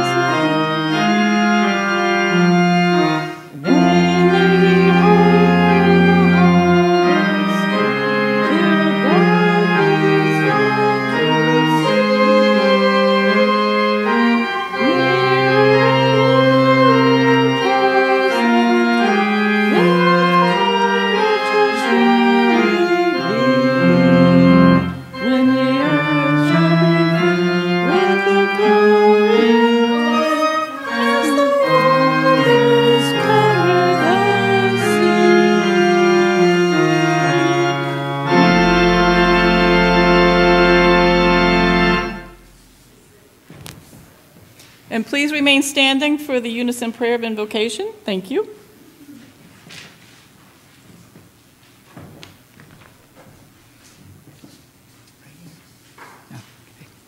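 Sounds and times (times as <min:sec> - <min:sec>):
pipe organ playing chords: 0:00.0 - 0:43.3.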